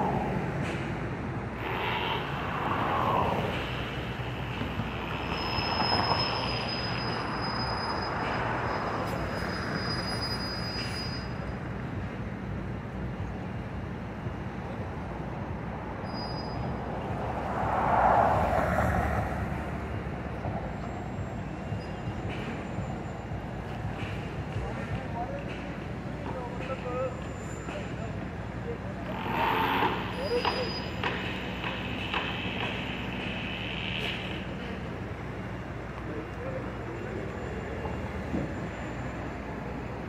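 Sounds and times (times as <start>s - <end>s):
traffic rumble: 0.0s - 40.0s
vehicles passing: 0.0s - 40.0s
thin high squeal: 5.2s - 11.6s, 16.0s - 16.8s, 29.2s - 31.0s.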